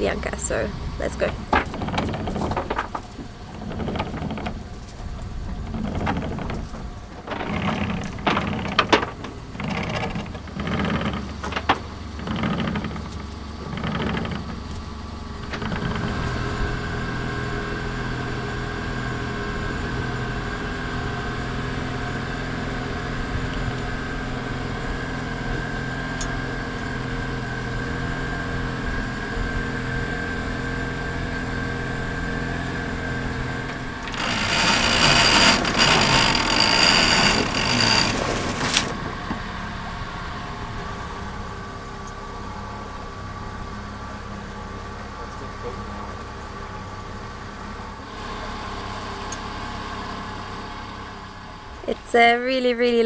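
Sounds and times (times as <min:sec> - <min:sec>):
boat engine whining: 0:00.0 - 0:53.0
anchor chain being hauled: 0:01.1 - 0:04.9, 0:05.6 - 0:14.7, 0:34.0 - 0:39.0.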